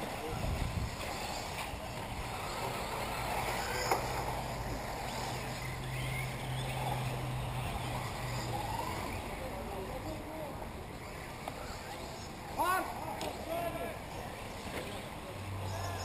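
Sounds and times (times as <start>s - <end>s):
model car motors whining: 0.0s - 12.6s.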